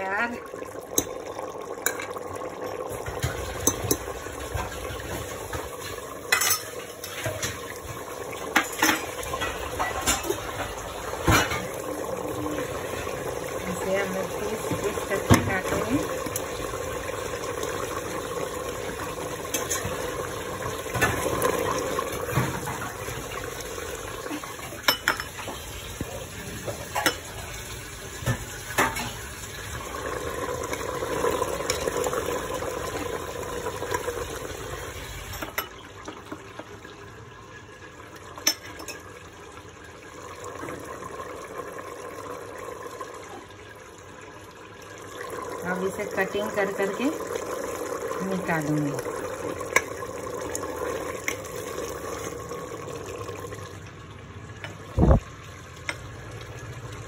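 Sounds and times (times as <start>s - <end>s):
metal clinking on pot: 0.9s - 4.7s, 6.3s - 7.6s, 8.5s - 11.8s, 19.4s - 20.0s, 24.7s - 25.5s, 26.9s - 27.3s, 35.3s - 36.2s, 38.4s - 39.1s.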